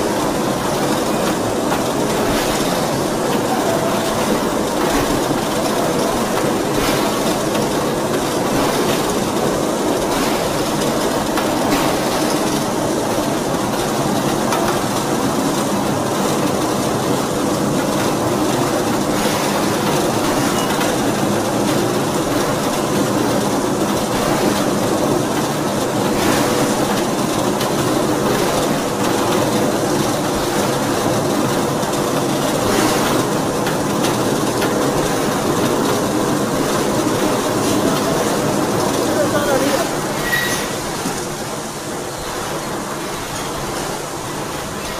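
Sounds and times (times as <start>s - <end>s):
ring rolling machine rumble and clatter: 0.0s - 44.9s.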